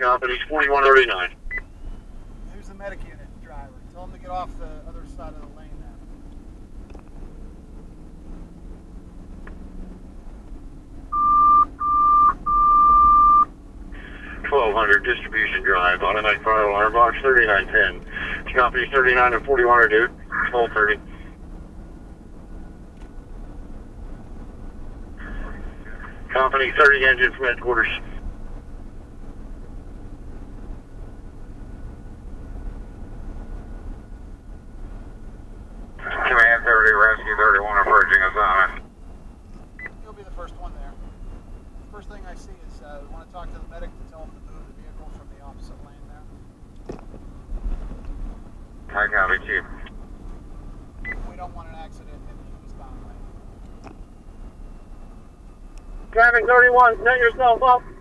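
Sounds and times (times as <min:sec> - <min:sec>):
road and engine noise in car cabin: 0:00.0 - 0:58.0
vehicle driving hum: 0:00.0 - 0:58.0
radio alert beeps: 0:11.1 - 0:19.7, 0:36.0 - 0:38.8, 0:39.8 - 0:40.0, 0:48.9 - 0:49.9.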